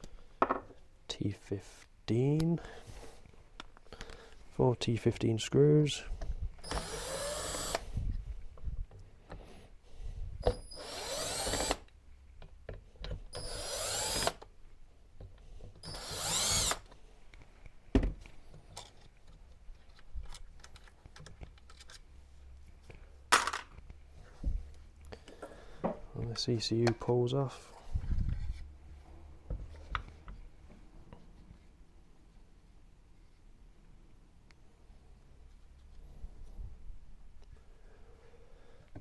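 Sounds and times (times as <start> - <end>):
cordless drill motor whine: 6.6 - 7.9, 10.4 - 11.8, 13.4 - 14.4, 15.8 - 16.8.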